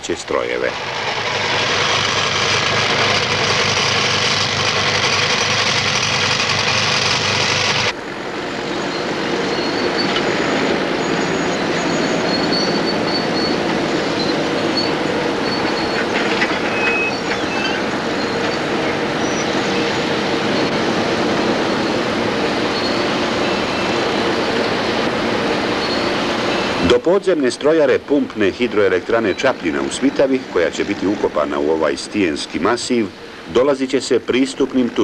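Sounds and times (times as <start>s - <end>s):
tunnelling machinery noise: 0.0s - 35.0s
vehicle engine rumble: 0.0s - 35.0s
faint high squeals: 8.7s - 20.9s, 22.6s - 24.8s, 25.8s - 26.8s.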